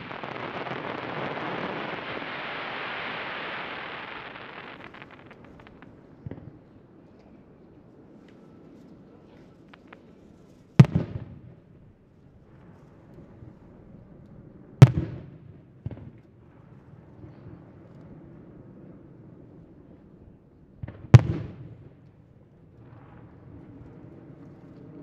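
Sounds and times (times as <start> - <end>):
firework shells booming: 0.0 - 6.5
small firework pop: 0.0 - 7.3, 9.4 - 11.5.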